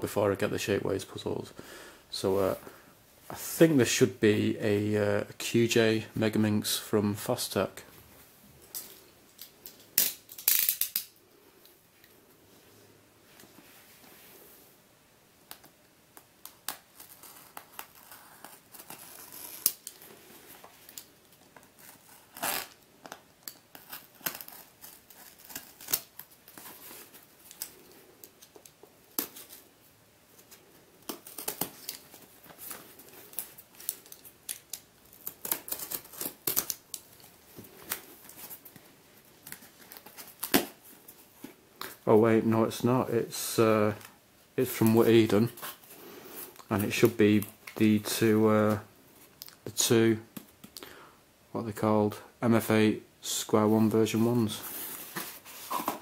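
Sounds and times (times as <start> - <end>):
tape tearing: 9.4 - 11.1, 15.5 - 29.7, 30.4 - 38.8, 39.4 - 40.8
utility knife slitting packing tape: 16.7 - 20.0
cardboard rustling: 54.6 - 56.0.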